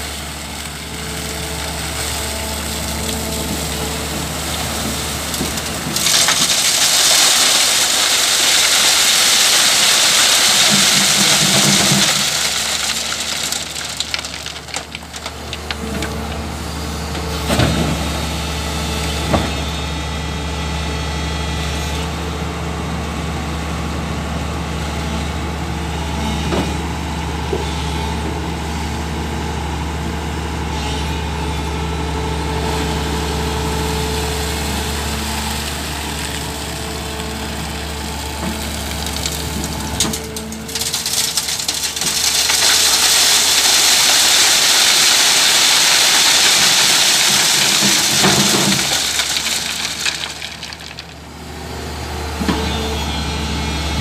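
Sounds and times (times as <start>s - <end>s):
excavator diesel engine running: 0.0s - 54.0s
wet gravel pouring onto mesh: 4.7s - 15.8s, 34.4s - 51.2s.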